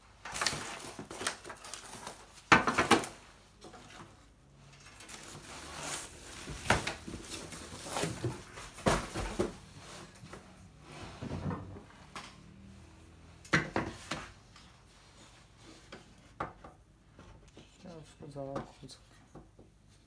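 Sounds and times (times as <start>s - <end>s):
cardboard packaging rustling: 0.1s - 10.7s.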